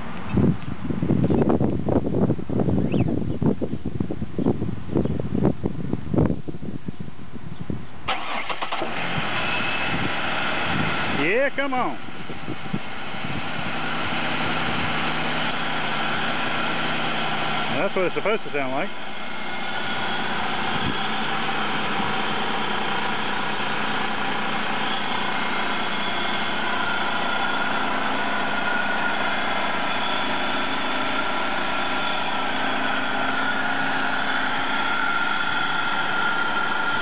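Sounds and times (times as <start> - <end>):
car engine idling: 8.1 - 37.0.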